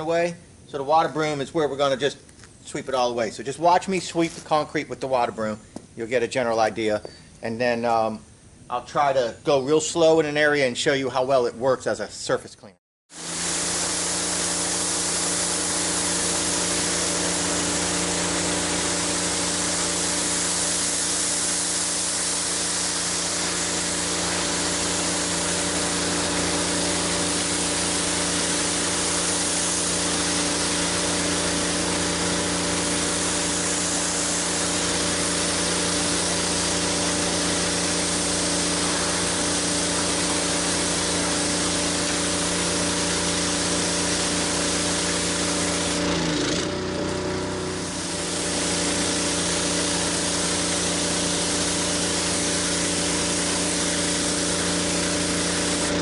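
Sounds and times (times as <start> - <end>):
pressure washer hum: 13.1 - 56.0
water spray hissing on concrete: 13.1 - 56.0.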